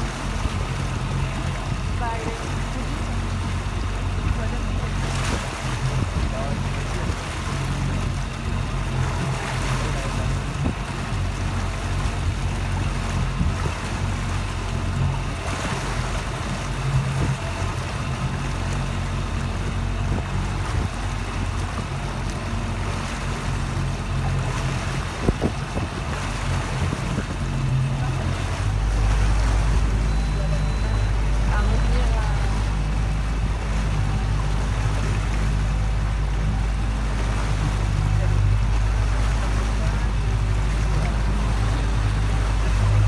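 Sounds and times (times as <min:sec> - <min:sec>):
boat engine running: 0:00.0 - 0:43.0
deep rumble: 0:00.0 - 0:43.0
water rushing: 0:00.0 - 0:43.0
wind buffeting microphone: 0:24.2 - 0:30.0.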